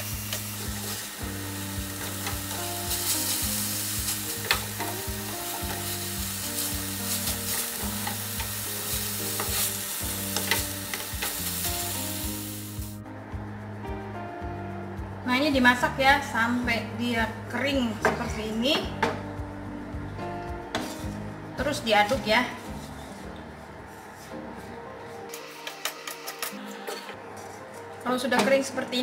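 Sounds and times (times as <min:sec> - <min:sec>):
spice paste sizzling in oil: 0:00.0 - 0:13.0.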